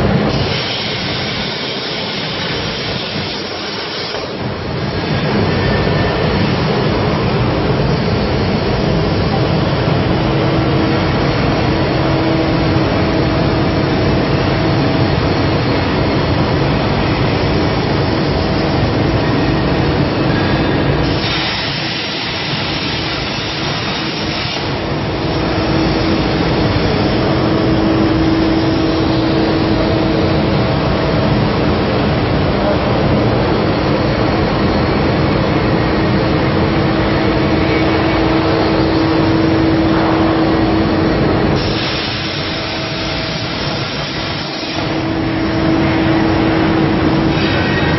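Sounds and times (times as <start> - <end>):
machine hum: 0.0 - 47.9
bright sharp hiss: 21.0 - 29.6, 41.5 - 47.9.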